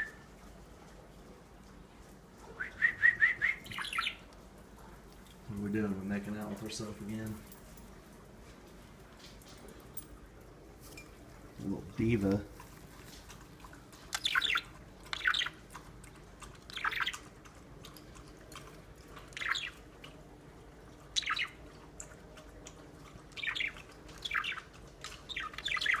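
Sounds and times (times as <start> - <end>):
parrot chirping: 2.6 - 4.3, 14.1 - 15.7, 16.7 - 17.3, 19.3 - 19.9, 21.1 - 21.7, 23.3 - 26.0.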